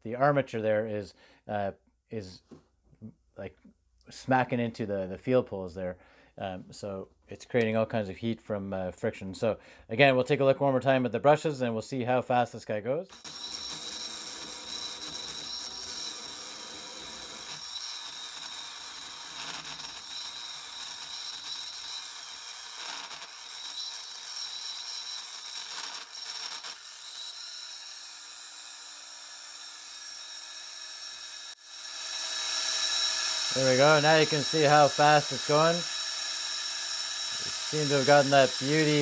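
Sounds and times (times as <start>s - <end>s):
motor brushes hissing: 33.4s - 35.9s.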